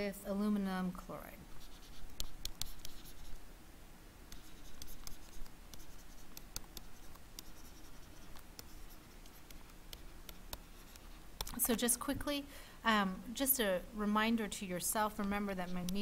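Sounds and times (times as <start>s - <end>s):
stylus scratching on tablet: 1.5s - 3.4s, 4.3s - 11.8s, 15.0s - 16.0s.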